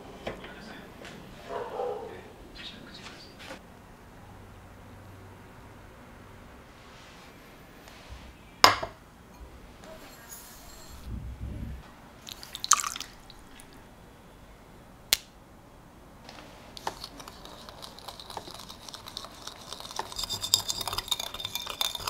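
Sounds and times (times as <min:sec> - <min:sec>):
whisk ticking against glass bowl: 0:16.8 - 0:22.0.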